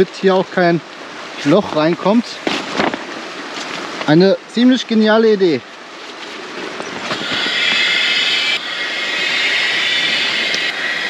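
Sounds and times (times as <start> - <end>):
air hissing into inflatable raft: 7.0 - 11.0.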